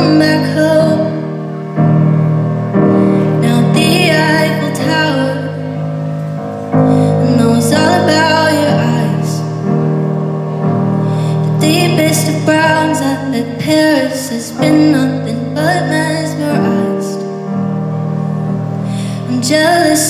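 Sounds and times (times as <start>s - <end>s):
woman singing a ballad: 0.0s - 2.1s, 2.8s - 6.1s, 6.7s - 10.0s, 11.0s - 17.6s, 18.6s - 20.0s
keyboard piano chords: 0.0s - 20.0s.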